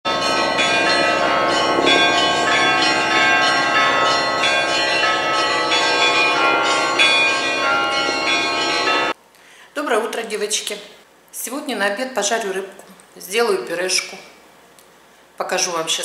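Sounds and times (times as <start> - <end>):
church bells pealing: 0.1 - 9.2.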